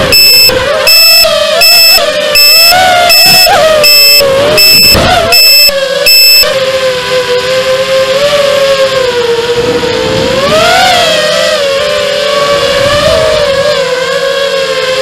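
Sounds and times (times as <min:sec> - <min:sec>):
drone motors whining: 0:00.0 - 0:15.0
short electronic beep: 0:00.1 - 0:01.2, 0:03.9 - 0:06.5.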